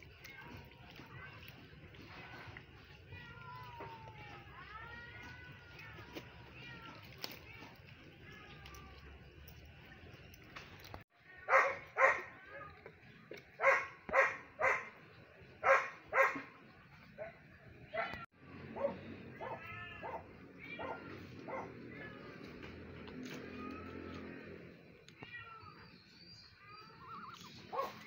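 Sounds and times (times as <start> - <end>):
soft wavering animal calls: 25.6 - 28.0.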